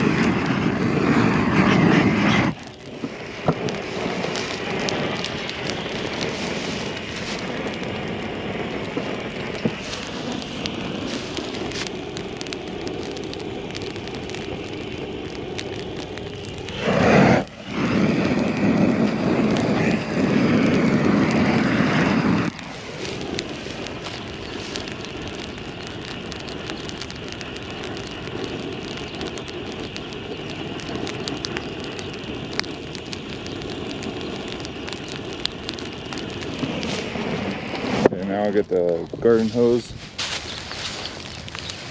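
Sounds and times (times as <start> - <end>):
burning grass crackling: 0.0 - 41.9
gas torch hissing: 0.0 - 41.9.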